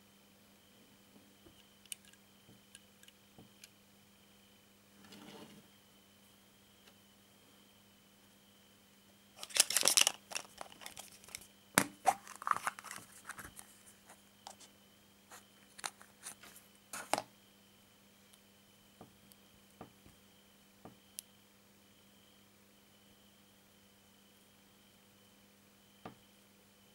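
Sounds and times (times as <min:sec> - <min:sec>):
plastic capsule clicks: 0:09.4 - 0:13.4
wrapper crinkling: 0:09.4 - 0:13.8.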